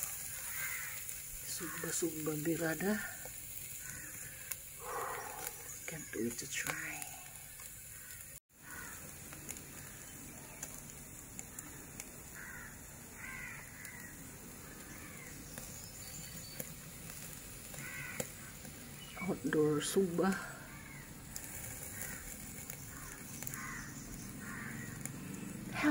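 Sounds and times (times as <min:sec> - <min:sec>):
animal calling: 0:03.8 - 0:05.9.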